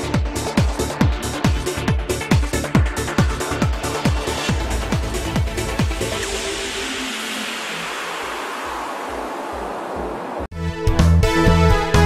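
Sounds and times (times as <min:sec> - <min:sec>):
music with fast kick-drum beat: 0:00.0 - 0:07.9.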